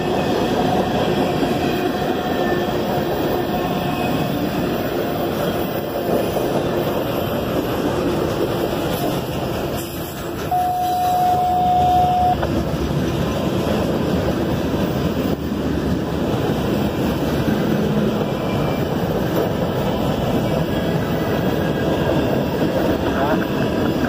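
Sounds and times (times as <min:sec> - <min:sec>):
freight train rumbling on rails: 0:00.0 - 0:24.0
high-pitched tone: 0:10.5 - 0:12.4.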